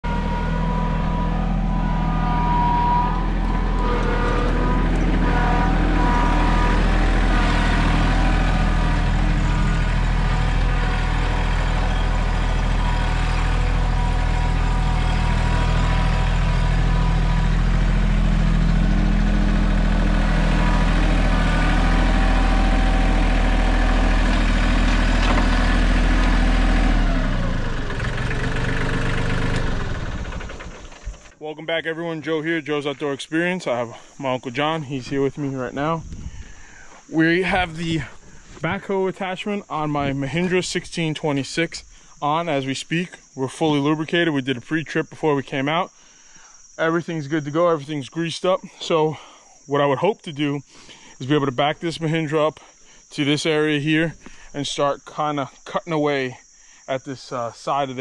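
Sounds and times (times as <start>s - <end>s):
tractor diesel engine running: 0.0s - 43.1s
hydraulics whine: 0.0s - 49.1s.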